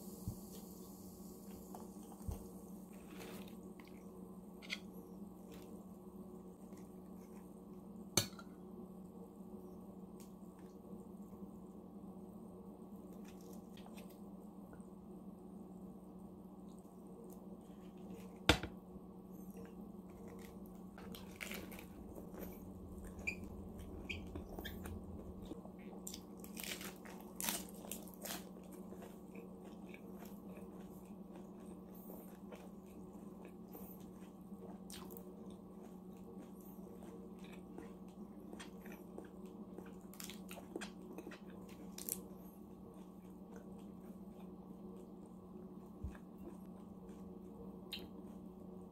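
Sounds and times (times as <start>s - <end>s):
steady low hum: 0.0s - 48.9s
crunching and chewing: 13.0s - 14.3s, 19.4s - 48.9s
lettuce leaves crackling: 20.2s - 22.0s, 26.2s - 28.5s.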